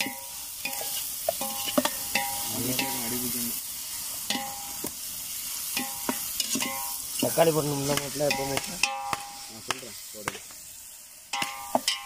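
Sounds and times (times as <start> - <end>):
metal pot ringing: 0.0 - 3.1, 4.3 - 4.8, 5.7 - 7.1, 8.2 - 9.5, 11.3 - 12.0
onions sizzling in oil: 0.0 - 12.0.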